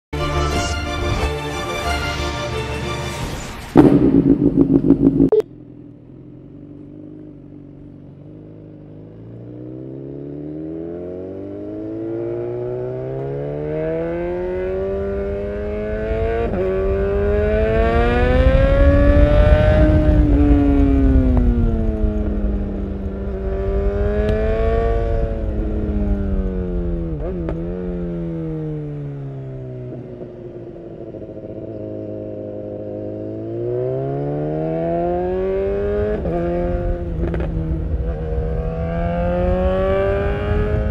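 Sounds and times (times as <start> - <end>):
motorcycle engine revving: 3.7 - 40.9
wind rushing over microphone: 14.4 - 28.3, 35.2 - 40.9.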